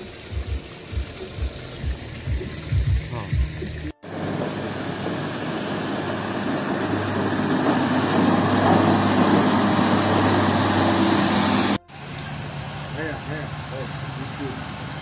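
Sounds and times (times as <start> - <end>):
truck engine humming: 0.0 - 15.0
plough blade pushing slush: 4.4 - 11.8.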